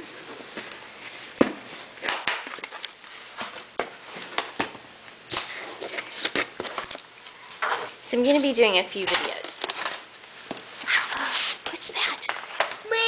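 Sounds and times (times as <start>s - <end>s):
cardboard rustling: 5.3s - 11.7s.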